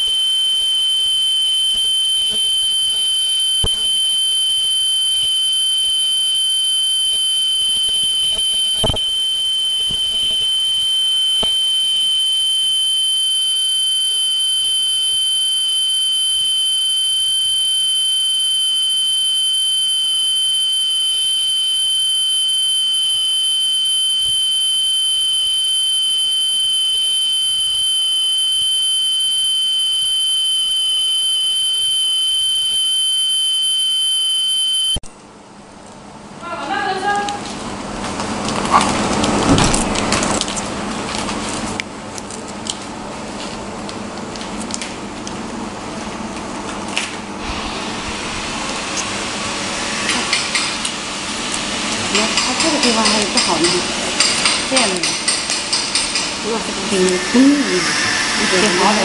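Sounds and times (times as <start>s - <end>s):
machine high-pitched whine: 0.0s - 17.8s, 47.4s - 59.0s.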